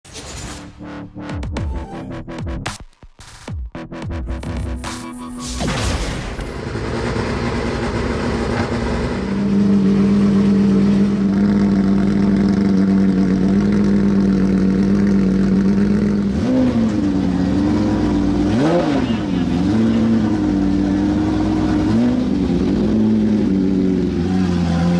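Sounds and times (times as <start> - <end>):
car engine idling: 6.4 - 24.9.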